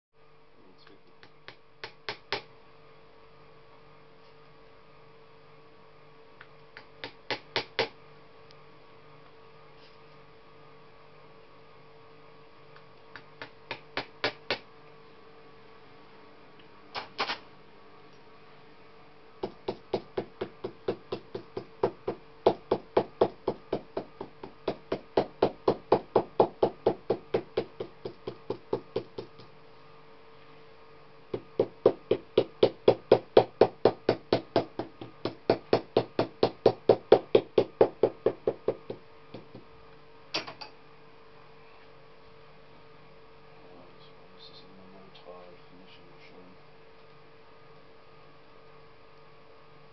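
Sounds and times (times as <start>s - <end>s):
steady hum: 0.2s - 49.9s
hammer tapping on leather: 19.4s - 29.5s.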